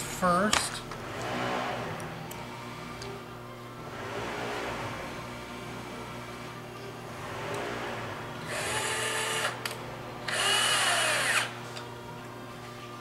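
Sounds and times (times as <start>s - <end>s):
power drill driving screw: 7.4s - 11.5s.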